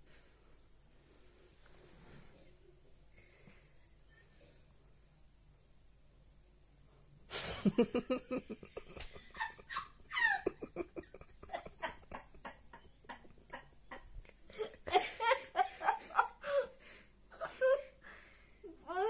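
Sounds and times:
person giggling softly: 7.3 - 18.0.

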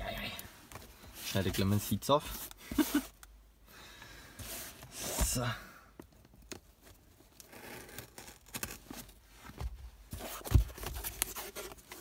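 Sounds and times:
cardboard rustling and clicking: 8.8 - 12.0.

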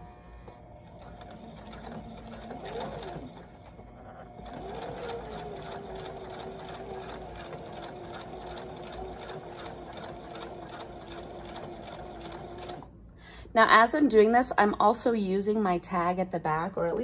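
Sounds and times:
sewing machine motor whirring: 0.0 - 12.9.

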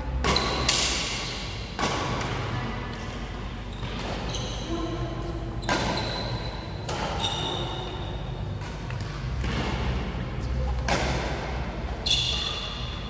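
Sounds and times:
rackets hitting shuttlecock: 0.2 - 2.4, 5.6 - 10.0, 10.7 - 11.6.

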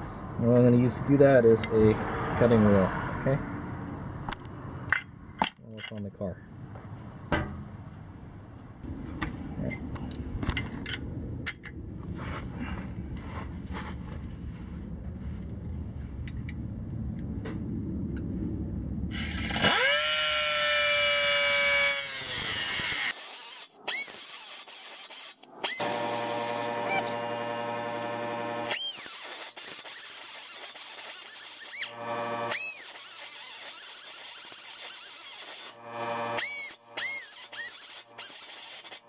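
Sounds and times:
low rumble: 7.7 - 19.6
pneumatic cut-off wheel whining: 19.1 - 39.0.

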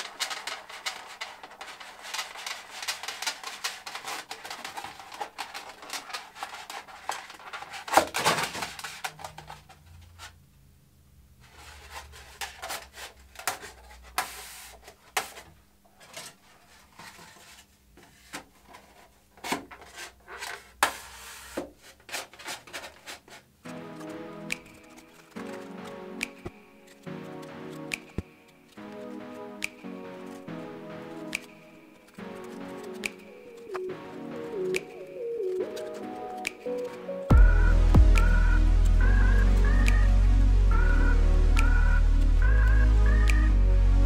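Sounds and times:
foam rubbing and squeaking: 0.0 - 10.4, 11.4 - 15.0, 16.0 - 25.9.

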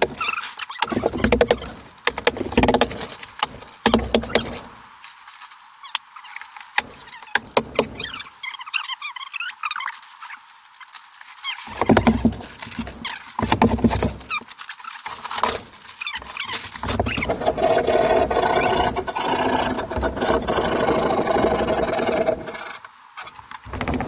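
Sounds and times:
drywall clicks and knocks: 0.0 - 4.7, 6.8 - 8.1, 11.7 - 14.3, 23.5 - 24.0.

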